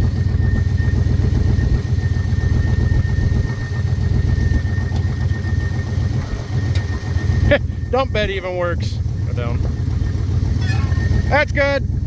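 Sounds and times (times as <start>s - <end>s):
high whine: 0.0s - 12.0s
truck engine idling: 0.0s - 12.0s.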